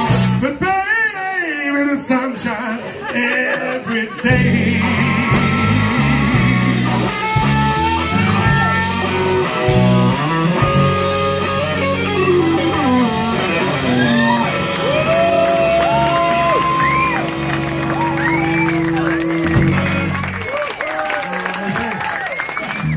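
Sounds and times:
bass guitar: 0.0 - 0.8, 4.1 - 22.9
drums: 0.0 - 3.1, 4.0 - 22.9
electric guitar lead: 4.3 - 20.7.

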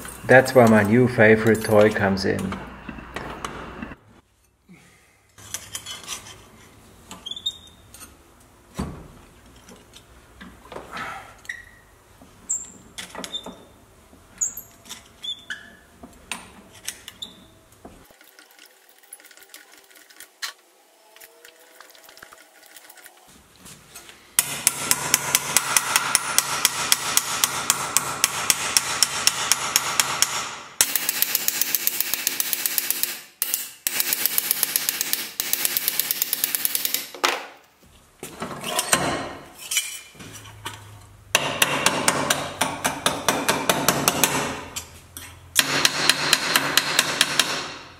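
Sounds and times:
hammer beating steel panel: 24.4 - 32.7, 45.6 - 47.9.

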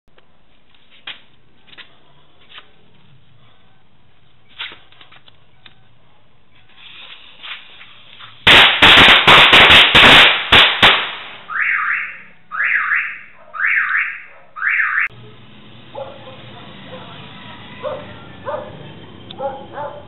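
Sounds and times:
firecrackers banging: 6.7 - 11.6
car alarm whooping: 11.5 - 15.1.

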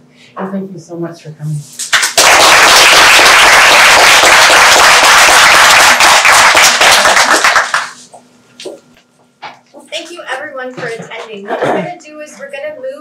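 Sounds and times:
audience applauding: 1.8 - 8.0.

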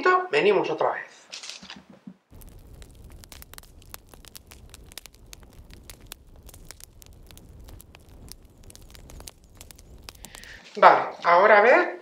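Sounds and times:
faint irregular crackling: 1.3 - 11.6
low rumble: 2.3 - 10.6.

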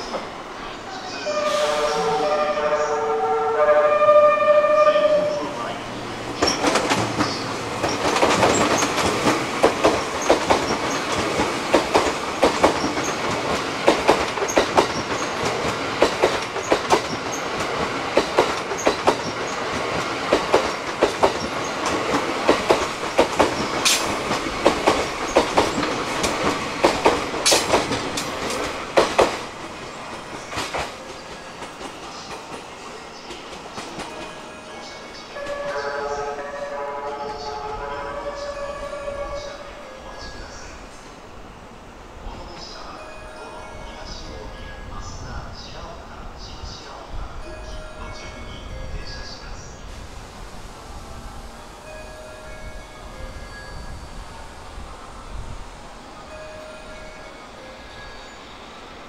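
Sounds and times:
train running noise: 0.0 - 59.0
train wheels clickety-clack: 6.3 - 34.4.

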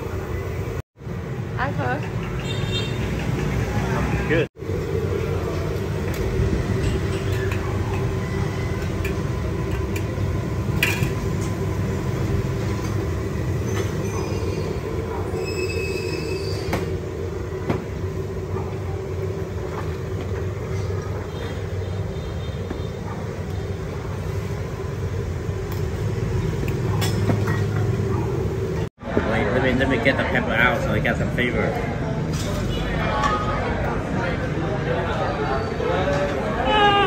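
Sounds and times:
mechanical rumble with hum: 4.3 - 21.6
high squeals: 13.6 - 17.0.

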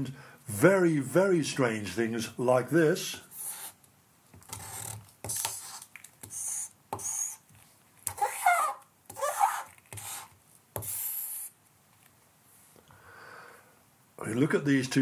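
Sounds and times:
charcoal scratching on paper: 3.3 - 3.8, 4.5 - 7.4, 8.1 - 11.5
charcoal squeaking: 4.5 - 11.5.

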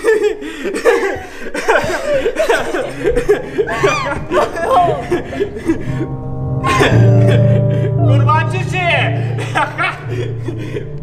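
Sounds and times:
women sobbing and wailing: 0.0 - 8.2
sustained music chords: 2.4 - 11.0.

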